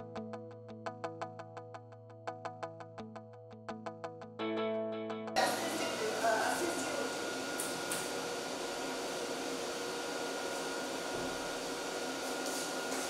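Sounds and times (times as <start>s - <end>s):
mechanical hum and hiss: 5.4s - 13.0s.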